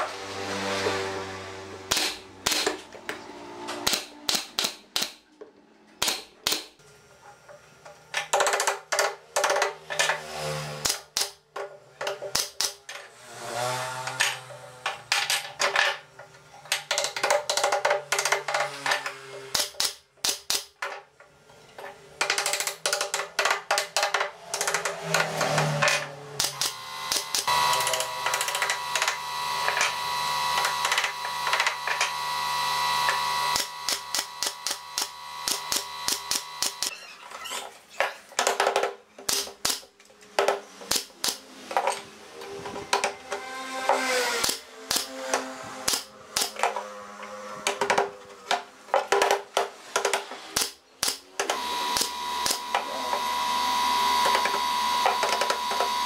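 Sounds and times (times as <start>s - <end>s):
pneumatic nailer shots: 1.9s - 2.9s, 3.7s - 5.2s, 10.2s - 11.4s, 12.3s - 12.8s, 19.4s - 20.8s, 24.5s - 32.1s, 32.8s - 36.9s, 39.3s - 39.9s, 40.8s - 41.5s, 43.9s - 46.8s, 49.8s - 53.0s
steady tone: 26.7s - 36.9s.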